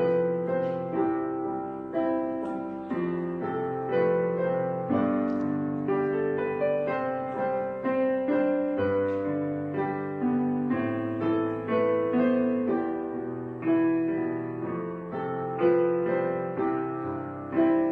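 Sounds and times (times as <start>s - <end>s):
slow piano music: 0.0s - 17.9s.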